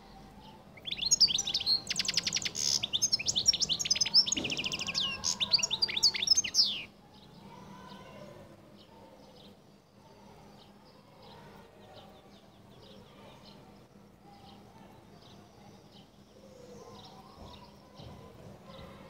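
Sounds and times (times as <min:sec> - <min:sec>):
goldfinch twittering: 0:00.8 - 0:06.9.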